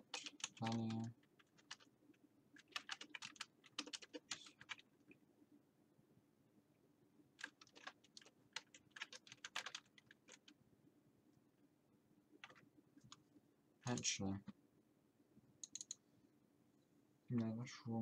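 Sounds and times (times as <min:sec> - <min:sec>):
faint keyboard typing: 0:00.0 - 0:05.2, 0:07.3 - 0:10.6, 0:12.3 - 0:14.6, 0:15.6 - 0:16.1.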